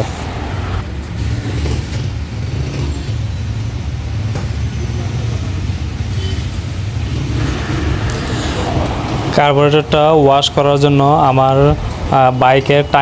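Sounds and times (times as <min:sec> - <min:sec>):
vehicle engine rumbling: 0:00.0 - 0:13.0.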